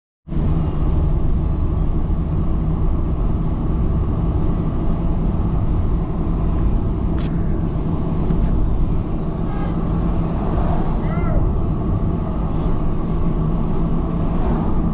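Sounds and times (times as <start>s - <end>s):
car road and engine rumble: 0.3s - 14.9s.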